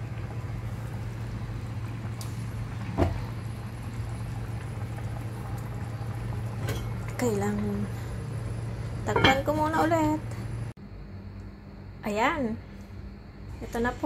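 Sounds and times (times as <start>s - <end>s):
sauce simmering in pot: 0.0s - 9.1s.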